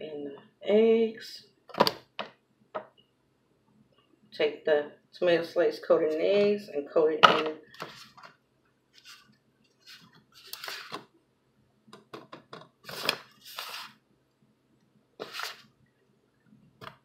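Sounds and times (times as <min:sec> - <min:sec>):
kitchen scrapes and rustles: 0:09.8 - 0:11.0, 0:12.8 - 0:14.0, 0:15.2 - 0:15.7.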